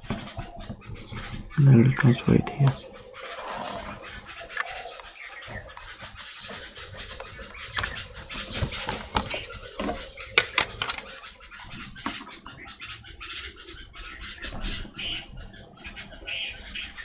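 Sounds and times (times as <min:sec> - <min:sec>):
plastic set squares clicking: 0:10.2 - 0:11.1.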